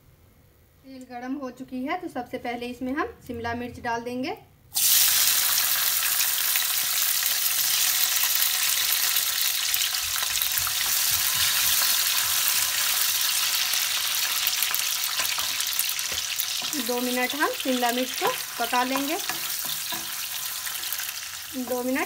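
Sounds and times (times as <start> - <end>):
peppers sizzling in hot oil: 4.7 - 22.0
wooden spatula turning food: 10.1 - 22.0.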